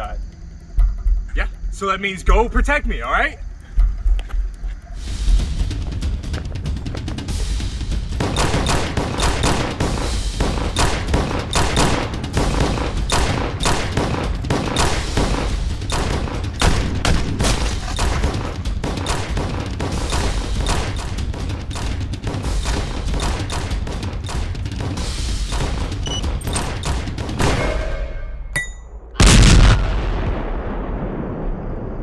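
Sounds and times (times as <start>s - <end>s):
steady low rumble: 0.0s - 23.2s.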